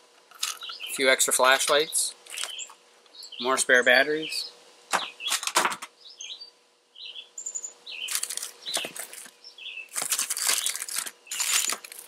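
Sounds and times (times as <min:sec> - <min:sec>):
small birds chirping: 0:00.4 - 0:12.0
packaging rustling in plastic tote: 0:08.1 - 0:12.0.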